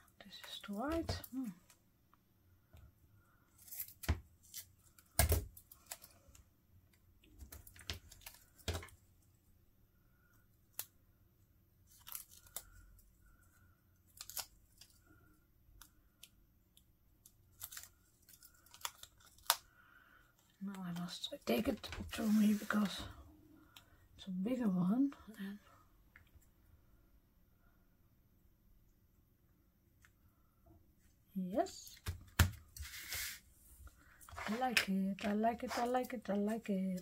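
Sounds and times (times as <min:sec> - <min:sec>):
paper rustling: 0:34.3 - 0:36.2.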